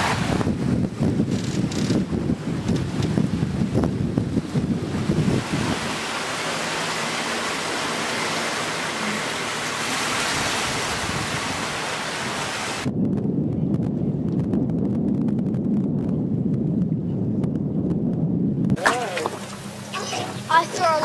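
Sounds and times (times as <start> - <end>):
water rushing past boat hull: 0.0 - 12.9, 18.8 - 21.0
wind buffeting microphone: 0.0 - 21.0.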